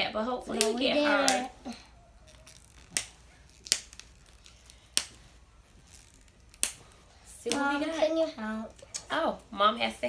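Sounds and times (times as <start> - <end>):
wrapping snapping: 0.5 - 7.9.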